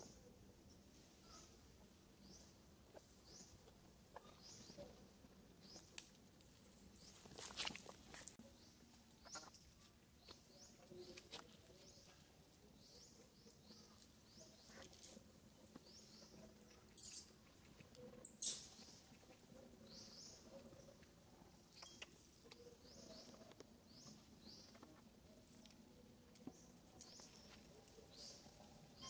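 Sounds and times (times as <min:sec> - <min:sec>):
faint high-pitched chirps: 0:16.0 - 0:21.0, 0:21.7 - 0:24.9.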